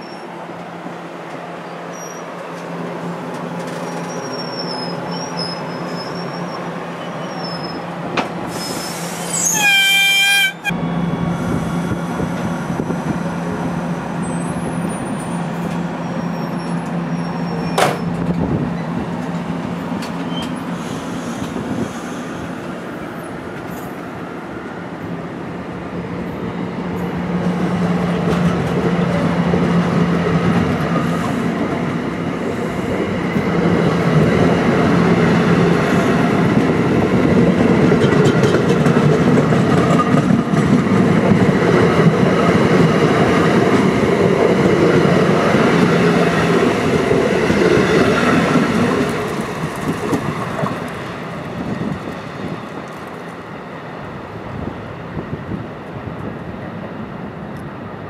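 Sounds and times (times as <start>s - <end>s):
train wheels clicking over rail joints: 36.5s - 43.4s.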